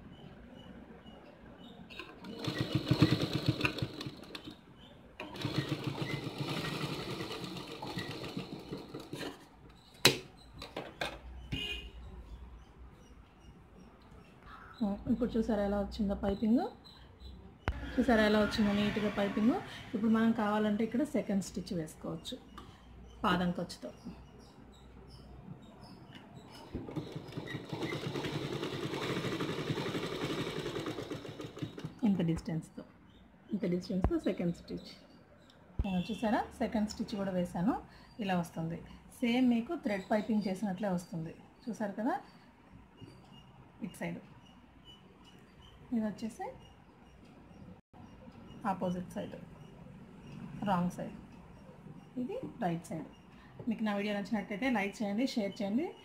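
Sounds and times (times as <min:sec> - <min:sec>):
sewing machine stitching: 0:01.9 - 0:04.6, 0:05.2 - 0:09.5, 0:26.7 - 0:32.0.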